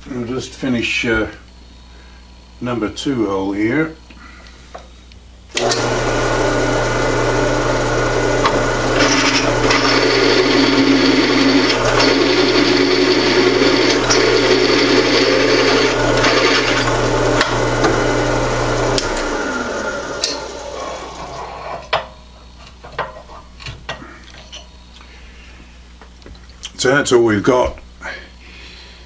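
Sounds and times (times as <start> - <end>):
drill cutting through metal: 5.5 - 21.8
drill press motor hum: 5.5 - 22.0.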